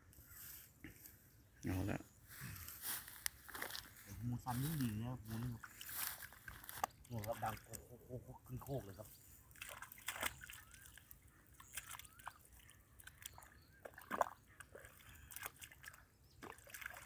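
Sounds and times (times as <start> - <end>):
dry straw crackling and rustling: 2.3 - 7.6.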